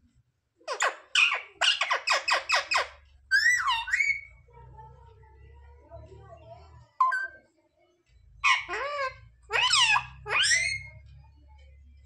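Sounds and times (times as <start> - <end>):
parakeet squawking: 0.7 - 4.4, 8.4 - 11.1.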